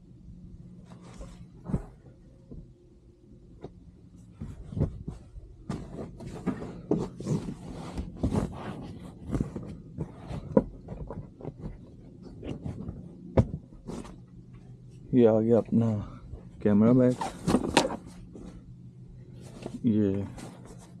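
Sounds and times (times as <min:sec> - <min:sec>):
low steady hum: 0:00.0 - 0:21.0
bedding rustling: 0:00.8 - 0:02.8, 0:04.0 - 0:15.0.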